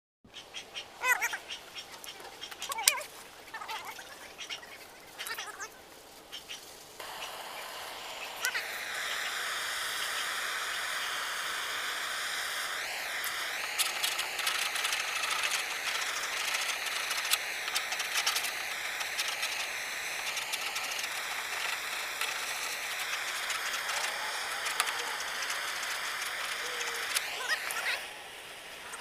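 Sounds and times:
propane torch hissing and whistling: 7.0 - 29.0.

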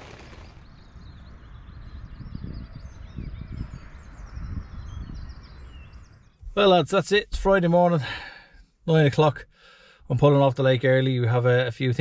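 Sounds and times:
wind buffeting microphone: 0.0 - 6.6
wild birds chirping and warbling: 0.0 - 10.5.

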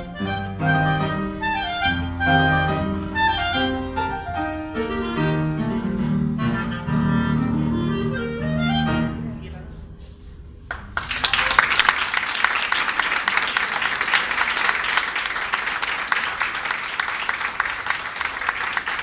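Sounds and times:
clarinet and piano note: 0.0 - 9.4
audience applauding: 10.7 - 19.0.

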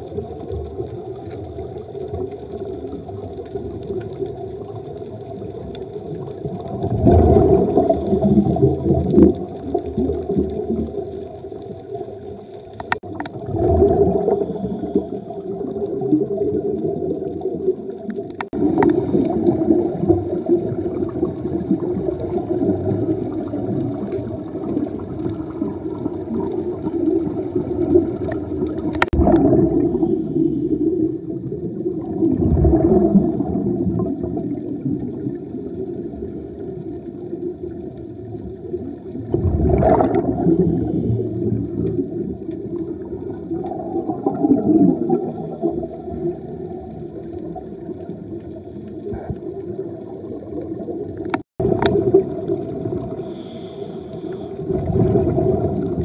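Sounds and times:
diver's exhaled breath bubbling: 6.4 - 11.1, 12.8 - 17.7, 18.4 - 36.2, 39.3 - 46.9, 49.0 - 49.8, 51.6 - 56.0.

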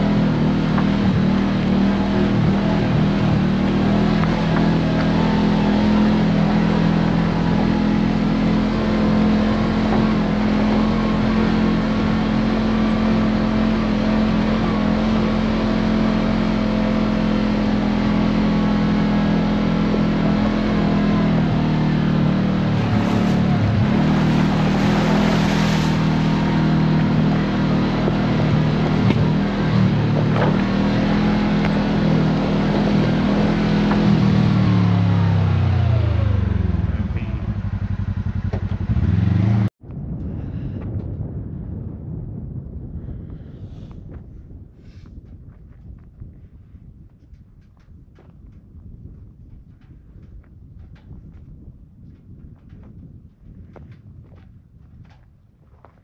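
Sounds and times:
vehicle engine running: 0.0 - 39.8.

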